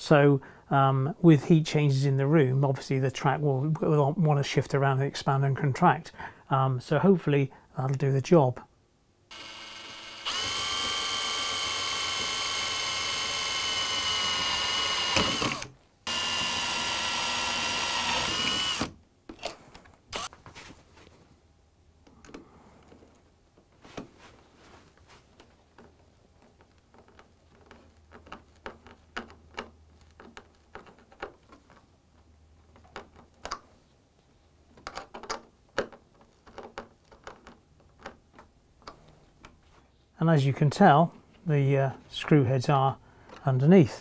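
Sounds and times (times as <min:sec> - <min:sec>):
cordless drill boring: 0:09.3 - 0:19.0, 0:20.1 - 0:20.3
screwdriver driving screws: 0:09.3 - 0:19.0, 0:20.1 - 0:20.3.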